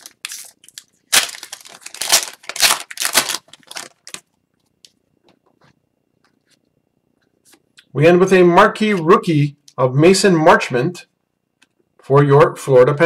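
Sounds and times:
foil wrapper tearing and crinkling: 0.0s - 4.3s.

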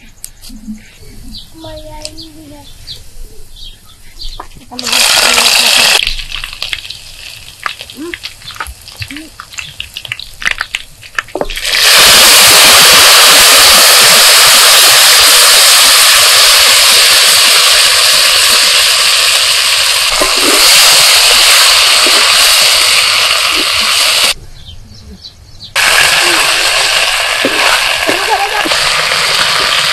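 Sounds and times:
leaves sizzling in hot oil: 4.7s - 24.4s, 25.8s - 29.9s.

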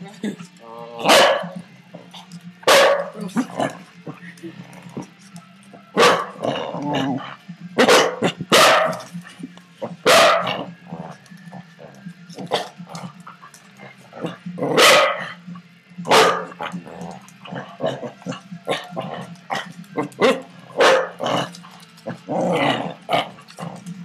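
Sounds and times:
puppies barking: 0.9s - 4.0s, 6.0s - 6.8s, 7.8s - 9.2s, 10.0s - 10.7s, 14.2s - 15.4s, 16.0s - 23.9s.

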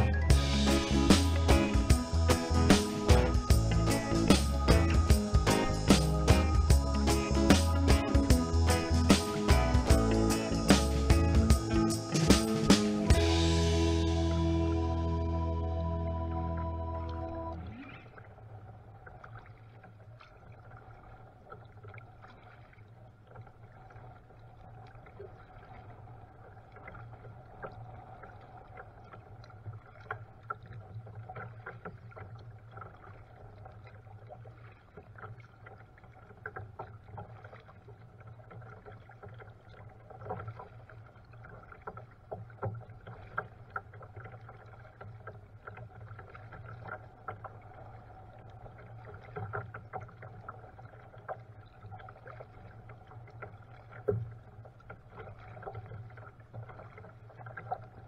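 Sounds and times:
paddle splashing against kayak: 0.0s - 13.2s, 17.6s - 58.0s
steady low hum: 0.0s - 17.8s.

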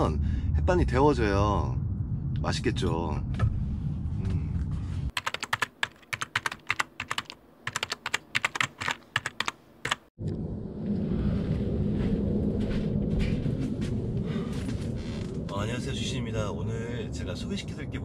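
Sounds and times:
low background rumble: 0.0s - 5.2s, 10.2s - 18.0s
keyboard typing clicks: 5.2s - 10.0s.

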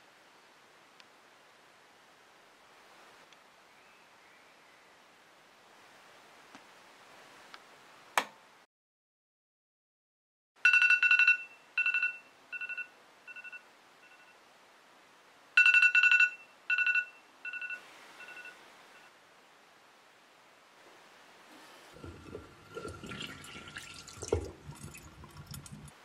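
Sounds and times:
electronic alarm beeping: 10.7s - 14.3s, 15.6s - 18.5s.

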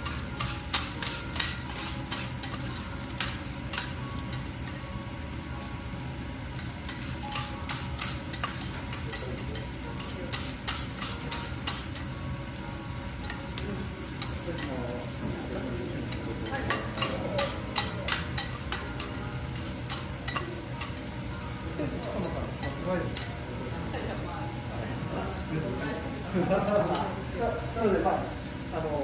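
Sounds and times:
metal spatulas tapping and scraping: 0.0s - 4.9s, 6.6s - 12.1s, 14.2s - 14.8s, 16.1s - 21.1s
garlic sizzling on a griddle: 0.0s - 29.0s.

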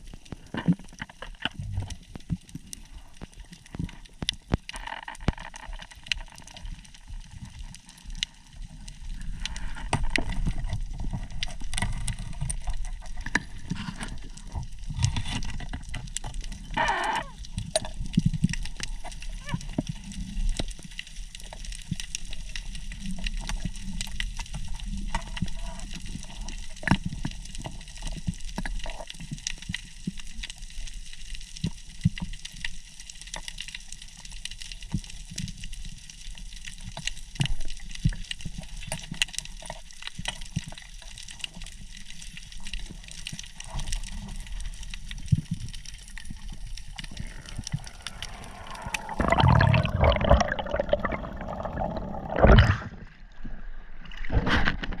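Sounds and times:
underwater crackle of clicks: 0.0s - 53.2s, 54.0s - 55.0s
water rushing and splashing: 46.2s - 55.0s.

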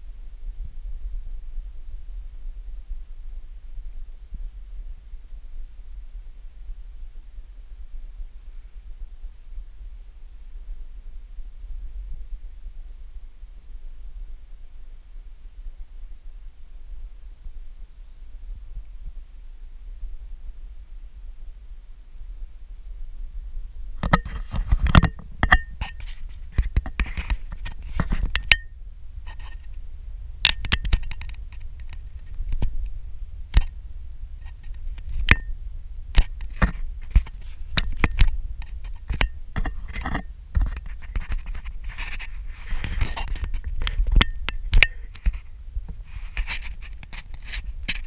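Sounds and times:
steady low rumble: 0.0s - 47.9s.

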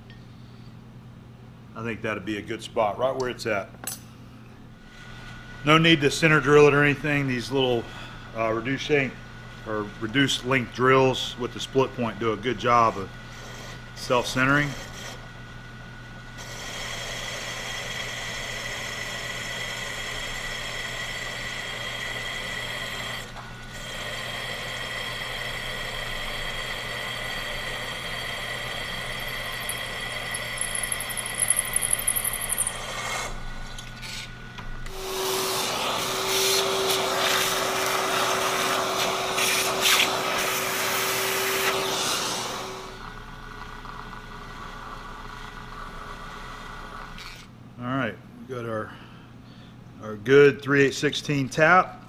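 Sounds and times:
shop vacuum running: 1.8s - 47.5s
drill cutting into cast iron: 16.4s - 33.4s
milling machine spindle running: 16.4s - 34.2s.

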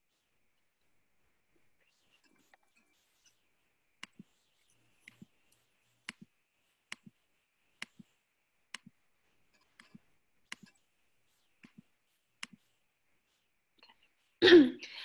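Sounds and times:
computer mouse clicks: 4.0s - 6.3s, 6.9s - 7.2s, 7.8s - 8.1s, 8.7s - 11.8s, 12.4s - 12.7s.

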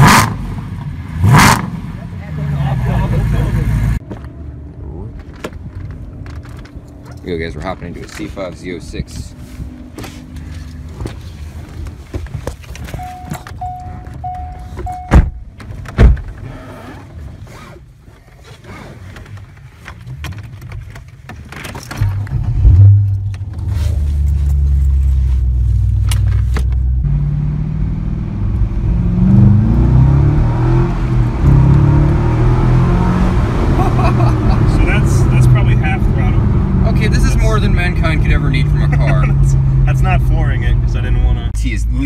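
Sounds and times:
engine revving as car pulls away: 0.0s - 1.8s, 27.0s - 41.4s
car engine starting and idling: 0.0s - 42.0s
car chime beeping: 13.0s - 15.4s.

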